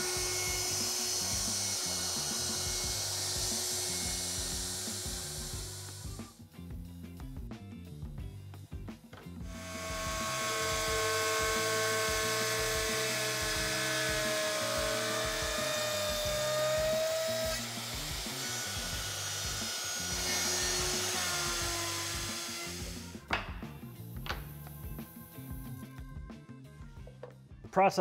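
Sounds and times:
router whining while cutting wood: 0:00.0 - 0:06.3, 0:09.4 - 0:23.3
background music with steady beat: 0:00.0 - 0:28.0.

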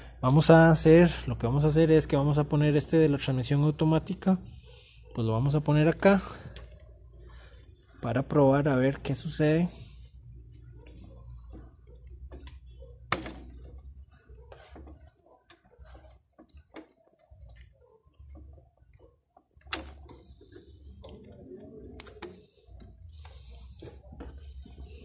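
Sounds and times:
plastic relay clicks and knocks: 0:18.2 - 0:22.9.

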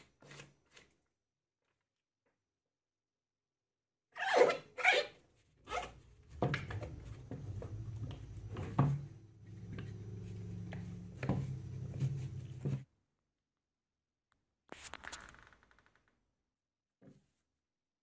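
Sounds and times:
steady low hum: 0:06.4 - 0:12.9
rubber sheet rustling: 0:14.7 - 0:16.0.

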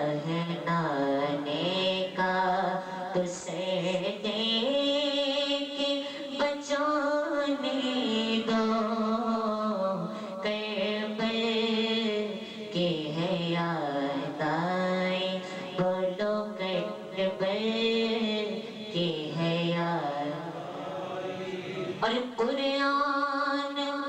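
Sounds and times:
breaths between phrases: 0:12.3 - 0:12.7.

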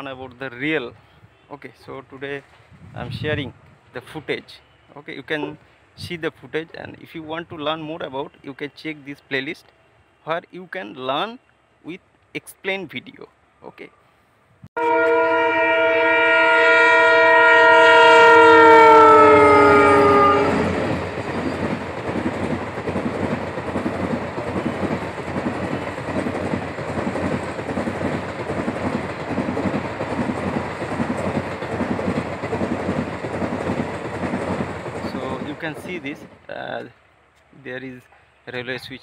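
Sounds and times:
locomotive horn blast: 0:14.8 - 0:20.8.

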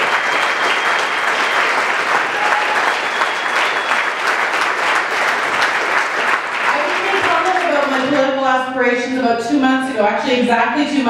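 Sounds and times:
large audience applauding: 0:00.0 - 0:08.5.

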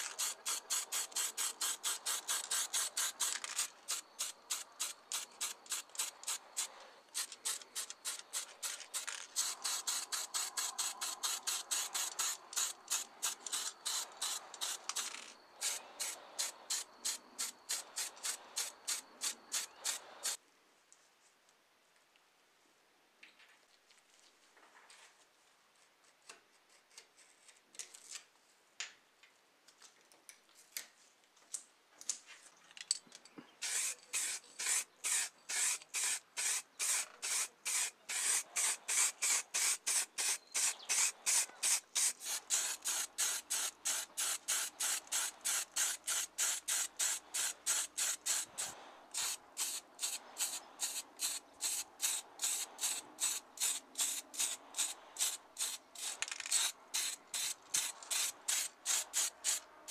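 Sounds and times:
spray paint hissing bursts: 0:00.0 - 0:20.4, 0:33.6 - 0:59.9.

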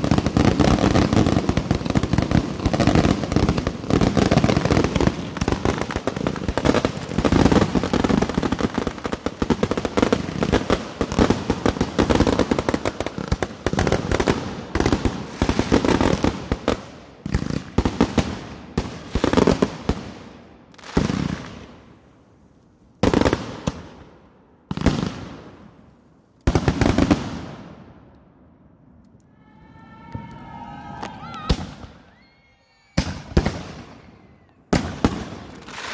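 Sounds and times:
fireworks barrage of bangs: 0:33.0 - 0:35.9.

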